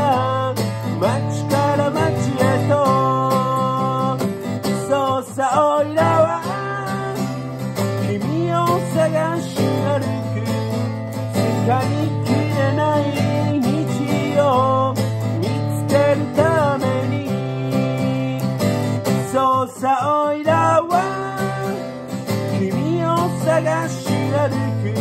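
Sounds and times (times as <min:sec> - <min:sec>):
acoustic guitar strumming: 0:00.0 - 0:25.0.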